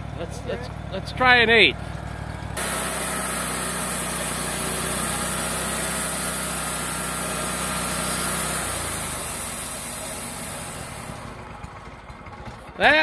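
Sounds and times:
sawmill gas engine running: 0:00.0 - 0:13.0
band saw blade cutting: 0:02.6 - 0:11.4.

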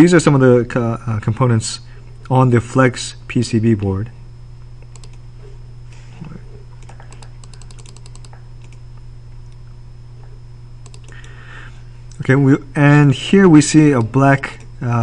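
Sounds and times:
low electrical hum: 0:00.0 - 0:15.0
computer mouse clicking: 0:04.8 - 0:05.2, 0:06.8 - 0:08.8, 0:10.8 - 0:11.4.

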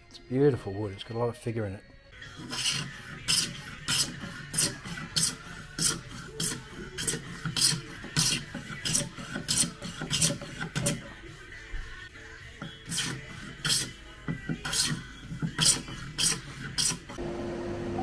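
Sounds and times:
hand saw cutting wood: 0:02.4 - 0:11.0, 0:12.8 - 0:13.9, 0:14.5 - 0:17.2.

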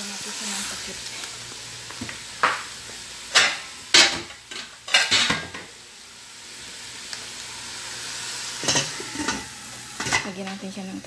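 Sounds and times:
chicken sizzling in pot: 0:00.0 - 0:11.0
cookware clattering: 0:03.3 - 0:05.7, 0:08.6 - 0:10.3.

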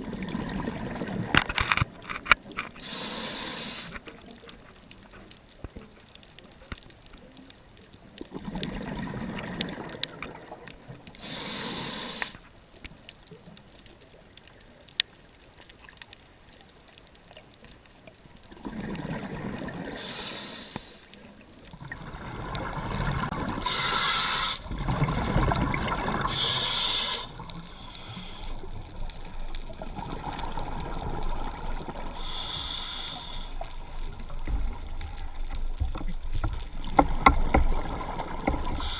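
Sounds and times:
bubbling exhale: 0:02.8 - 0:04.0, 0:11.2 - 0:12.4, 0:18.6 - 0:21.1, 0:21.8 - 0:34.1, 0:37.9 - 0:38.9
regulator hissing inhale: 0:02.8 - 0:04.1, 0:11.2 - 0:12.5, 0:19.9 - 0:21.2, 0:23.6 - 0:24.7, 0:26.2 - 0:28.8, 0:32.1 - 0:33.7, 0:38.7 - 0:38.9.

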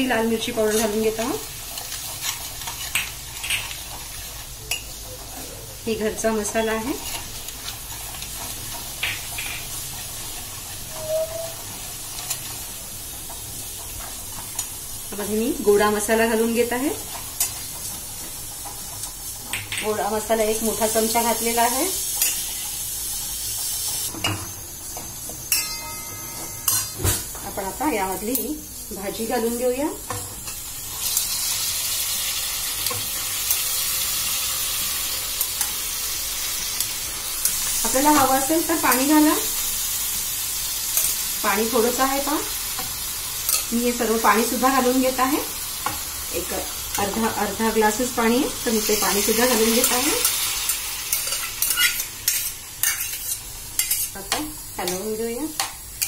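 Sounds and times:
spices sizzling in hot oil: 0:00.0 - 0:56.0
spoon scraping a pan: 0:10.9 - 0:12.4, 0:48.9 - 0:55.0.

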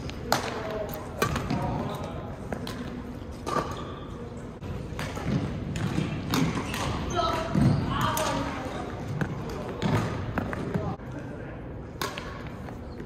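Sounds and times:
racket hitting shuttlecock: 0:04.9 - 0:08.4, 0:12.0 - 0:12.5.

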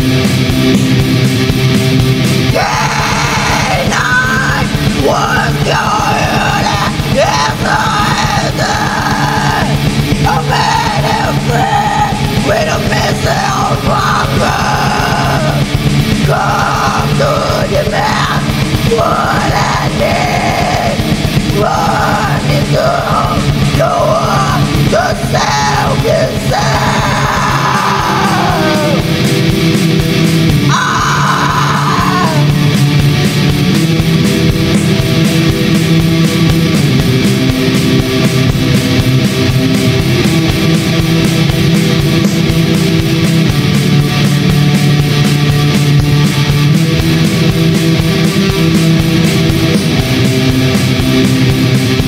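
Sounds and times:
distorted guitars: 0:00.0 - 0:52.0
fast dense drumming: 0:00.0 - 0:52.0
harsh screamed vocals: 0:02.4 - 0:33.0.

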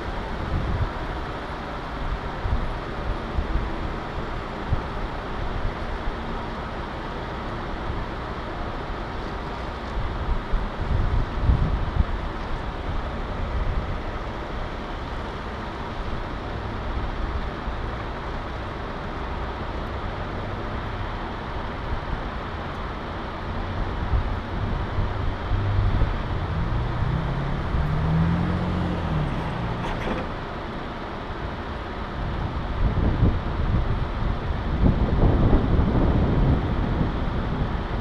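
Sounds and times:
car engine and road hum: 0:00.0 - 0:38.0
engine tone rising and falling: 0:25.4 - 0:30.4.

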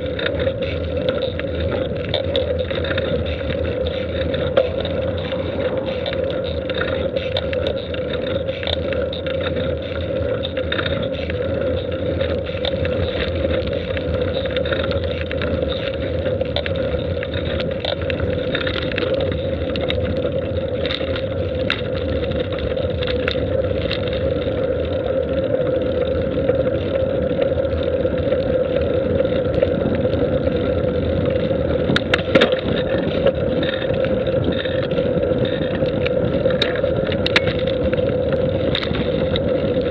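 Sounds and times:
faint clicks: 0:00.0 - 0:30.0
constant hum: 0:00.0 - 0:39.9
road and wind noise: 0:00.0 - 0:39.9.

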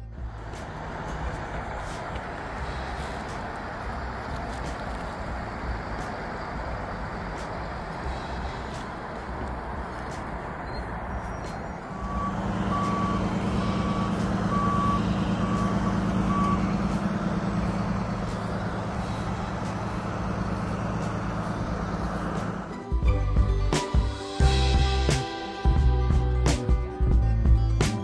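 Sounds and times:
truck engine running: 0:00.0 - 0:28.0
reversing alarm beeps: 0:10.6 - 0:19.6.

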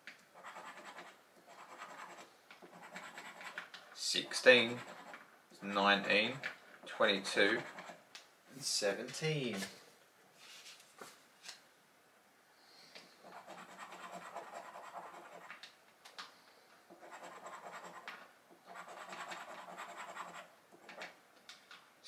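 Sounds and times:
scratchcard being scraped: 0:00.4 - 0:06.5, 0:07.5 - 0:08.0, 0:13.2 - 0:15.6, 0:16.9 - 0:21.0.

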